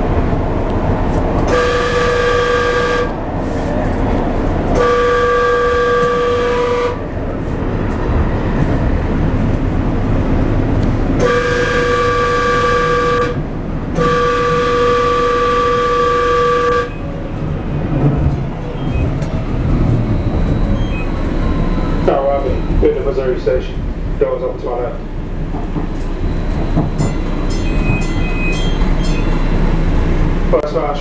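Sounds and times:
train running rumble: 0.0s - 31.0s
train horn blasts: 1.5s - 3.2s, 4.7s - 7.1s, 11.2s - 13.4s, 14.0s - 17.1s.

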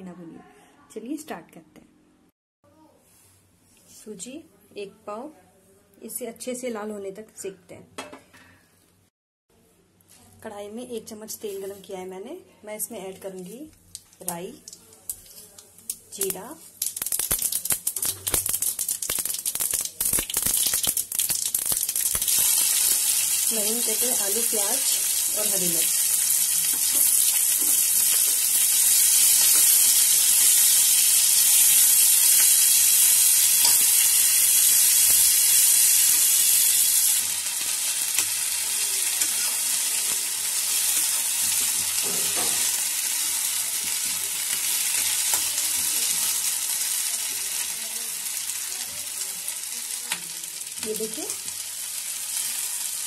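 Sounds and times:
vegetables sizzling in oil: 15.0s - 53.0s.

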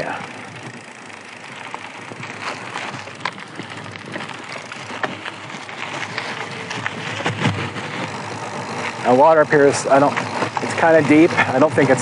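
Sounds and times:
bike clicks and rattles: 0.0s - 12.0s
tyres crunching on gravel: 0.0s - 12.0s.

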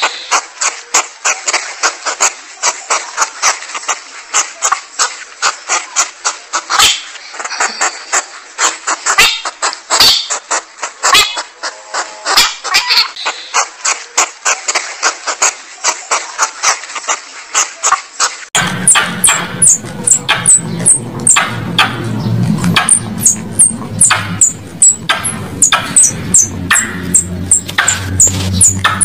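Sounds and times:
porcupine chewing on branch: 13.1s - 29.0s
short squeaky notes: 18.6s - 29.0s.

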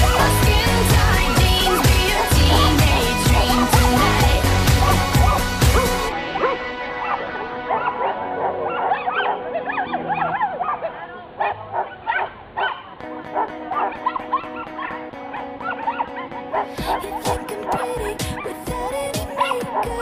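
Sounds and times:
background music: 0.0s - 11.1s, 12.6s - 20.0s
small dog yipping and barking: 8.7s - 15.0s, 15.6s - 20.0s.

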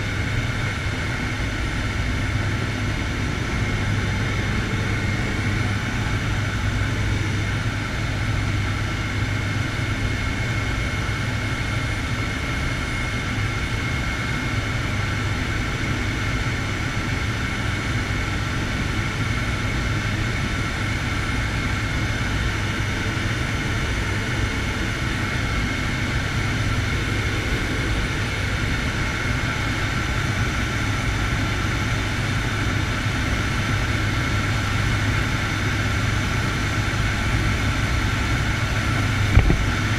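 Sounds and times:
turboprop aircraft engine drone: 0.0s - 39.9s.

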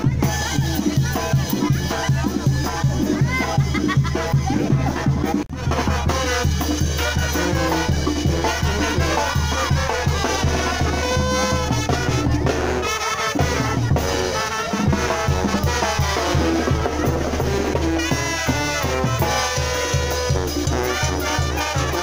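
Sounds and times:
brass: 0.0s - 22.0s
steady drum beat: 0.0s - 22.0s
upbeat latin dance music: 7.0s - 22.0s.

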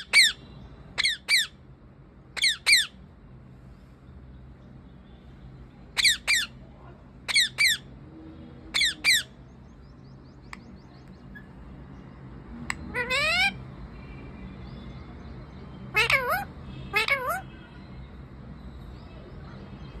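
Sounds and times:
parakeet squawking: 0.0s - 1.6s, 2.3s - 3.0s, 5.9s - 6.6s, 7.3s - 8.0s, 8.7s - 9.4s, 12.7s - 13.7s, 15.8s - 17.6s.

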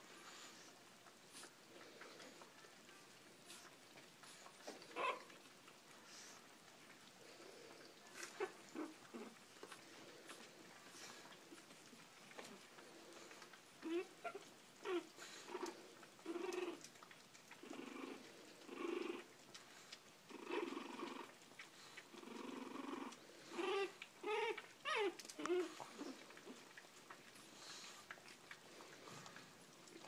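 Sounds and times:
puppies grunting and snuffling: 0.0s - 30.0s
puppy whines: 3.6s - 5.4s, 10.4s - 19.3s, 22.2s - 28.3s.

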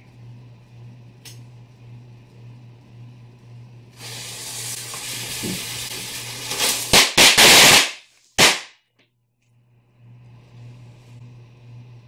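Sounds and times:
firework fuse hissing: 4.0s - 8.7s
firecrackers banging: 4.6s - 8.7s.

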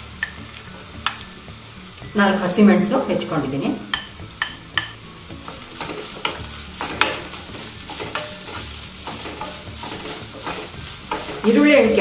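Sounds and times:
onions sizzling in hot oil: 0.0s - 12.0s
spatula tapping: 3.9s - 12.0s
spatula scraping a pan: 4.4s - 12.0s.

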